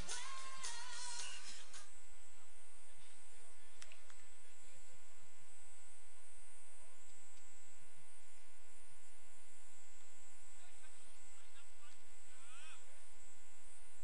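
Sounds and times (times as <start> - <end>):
electrical mains hum: 0.0 - 14.0
faint click: 3.8 - 4.3.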